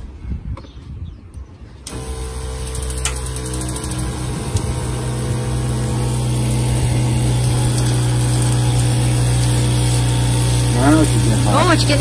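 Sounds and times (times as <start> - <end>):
water heater humming: 1.8 - 12.0.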